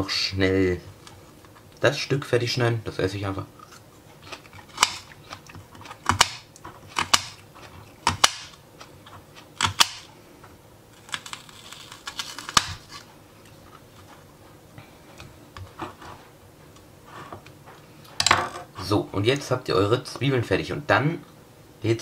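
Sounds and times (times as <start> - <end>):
knife chopping on plastic board: 5.8 - 7.4, 8.0 - 8.6.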